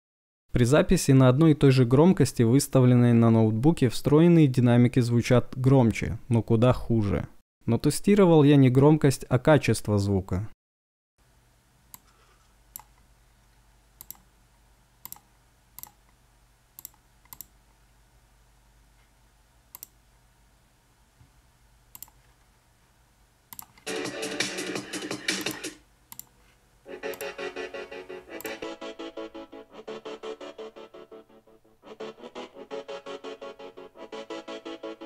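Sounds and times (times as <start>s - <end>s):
computer mouse clicks: 12.7s - 13.0s, 14.0s - 14.3s, 15.0s - 16.2s, 16.8s - 17.6s, 19.7s - 20.0s, 21.9s - 22.2s, 23.5s - 23.9s, 25.4s - 26.4s
electronic music with a beat: 23.9s - 25.8s, 26.9s - 31.2s, 31.9s - 35.0s.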